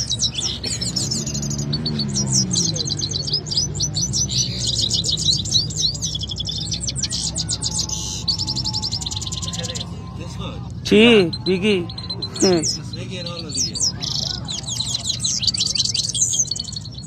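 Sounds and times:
canaries singing trills: 0.0 - 17.0
low murmur of men's voices: 0.0 - 17.0.

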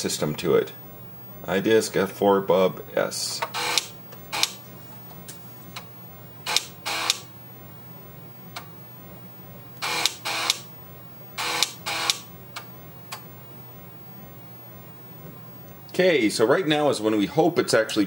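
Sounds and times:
computer humming: 0.0 - 17.4
floppy disk drive seeking: 3.4 - 4.6, 6.5 - 7.3, 9.8 - 10.7, 11.4 - 12.3.

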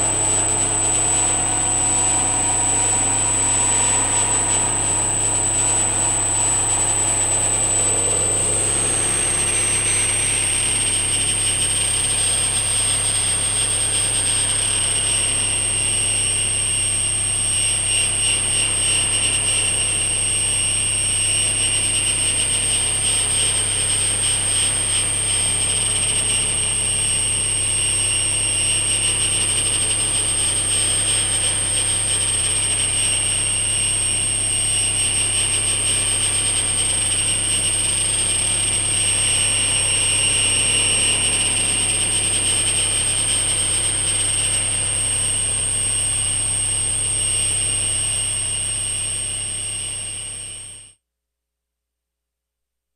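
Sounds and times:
low hum: 0.0 - 17.4
synthesizer drone with whistling tones: 0.0 - 50.8.

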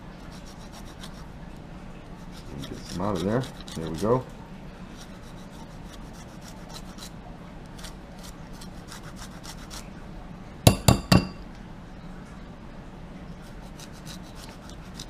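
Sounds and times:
grater scraping rind: 0.2 - 1.3, 2.2 - 4.2, 4.9 - 7.1, 7.7 - 9.9, 13.4 - 15.0
grater clinking against bowl: 2.4 - 4.2, 13.8 - 15.0.

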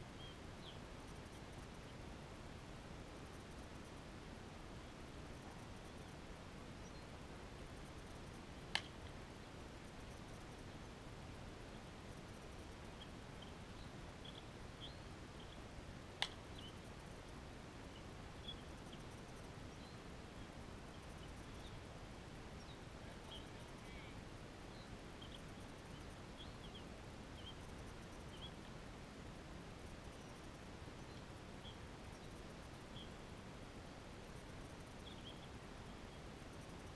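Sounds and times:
outdoor background hum: 0.0 - 36.9.

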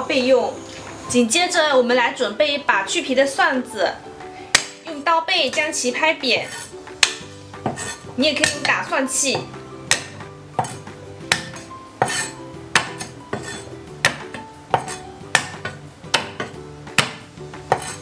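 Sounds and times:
cleaver chopping on cutting board: 4.5 - 4.8, 7.0 - 8.7, 9.8 - 18.0.

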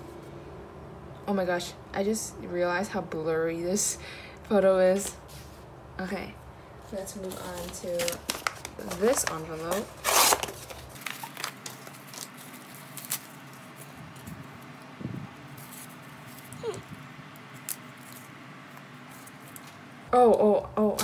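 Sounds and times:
cardboard package rustling and tapping: 7.0 - 13.2
plastic mailer crinkling: 7.0 - 14.8.

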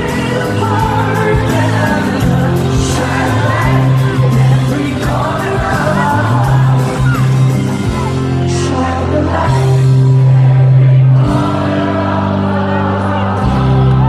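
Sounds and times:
woman singing: 0.0 - 7.4
crowd noise: 0.0 - 14.0
live band playing pop song: 0.0 - 14.0.

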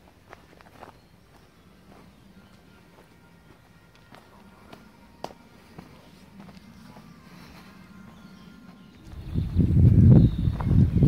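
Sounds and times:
wind buffeting microphone: 9.0 - 11.0.

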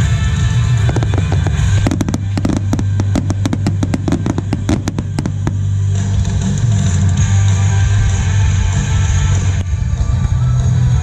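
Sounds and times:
loud music with bass: 0.0 - 11.0
firework bangs: 0.6 - 6.4.

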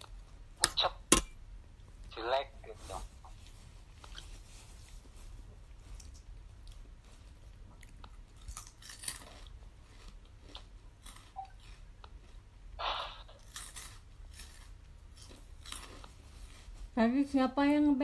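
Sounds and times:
crunchy food chewing: 3.2 - 16.9.

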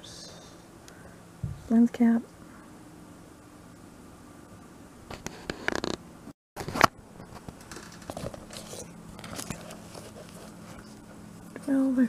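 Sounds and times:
faint clicks and rustles: 6.6 - 11.8.

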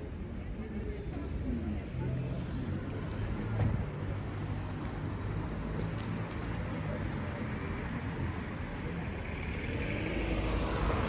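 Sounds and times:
car passing with tyre noise: 1.8 - 11.0
car engines at low speed: 2.7 - 11.0.

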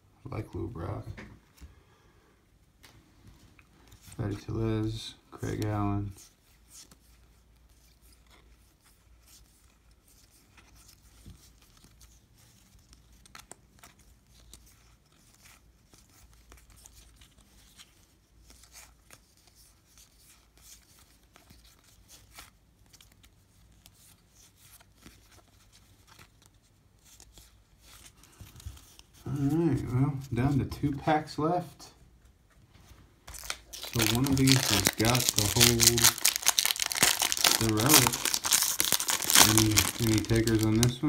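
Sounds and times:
foil pack crinkling: 33.3 - 41.0.

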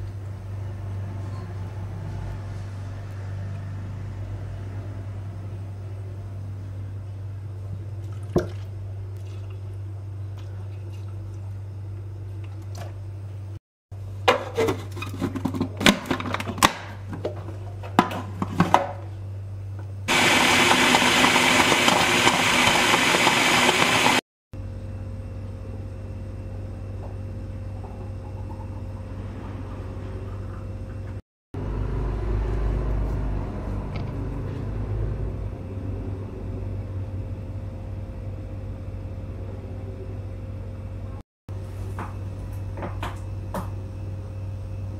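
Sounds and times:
food processor blending ice: 20.1 - 24.2
steady low hum: 24.6 - 34.0, 34.7 - 44.9.

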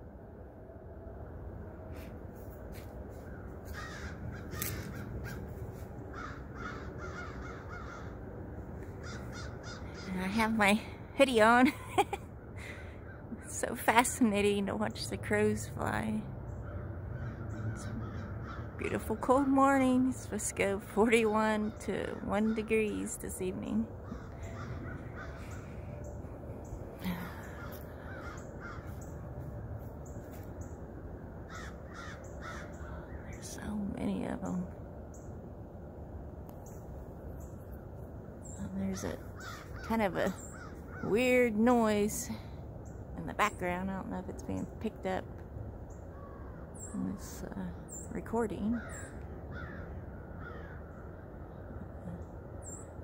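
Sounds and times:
steady low rumble: 0.0 - 53.0
flock of crows cawing: 3.2 - 10.1, 16.6 - 18.8, 24.0 - 26.1, 27.3 - 29.2, 31.4 - 33.2, 39.0 - 41.2, 46.0 - 46.8, 48.7 - 51.8.

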